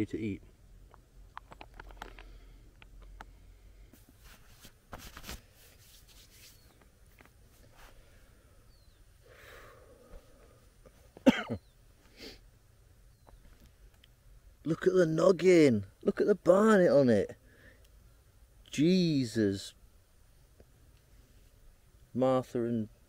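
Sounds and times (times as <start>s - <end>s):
fabric rustling: 4.0s - 8.0s
man coughing: 11.2s - 11.6s.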